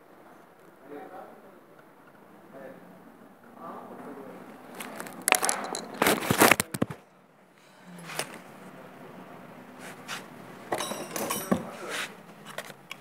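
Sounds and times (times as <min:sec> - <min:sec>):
rustling and crackling handling noise: 0:04.5 - 0:07.0, 0:10.9 - 0:13.0.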